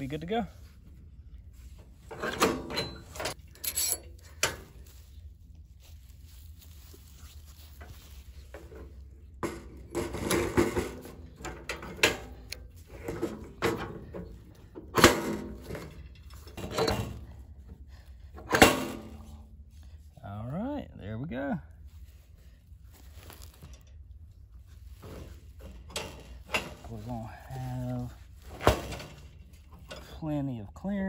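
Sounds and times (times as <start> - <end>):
go-kart wheel knocks and scrapes: 7.8 - 17.4, 27.9 - 30.1.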